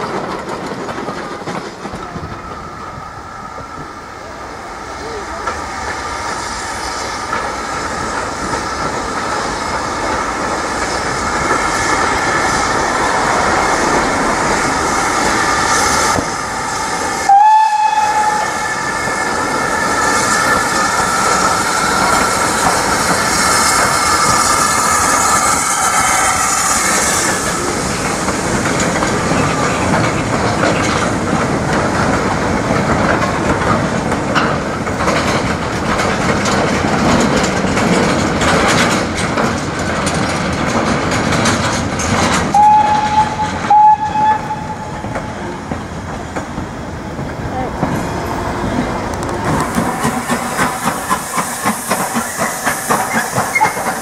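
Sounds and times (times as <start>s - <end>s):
wagon wheels clattering over rails: 0.0s - 2.3s, 27.8s - 48.3s
steam locomotive passing: 0.0s - 54.0s
locomotive whistle blast: 17.2s - 19.1s, 23.6s - 27.3s, 42.5s - 45.1s, 53.0s - 54.0s.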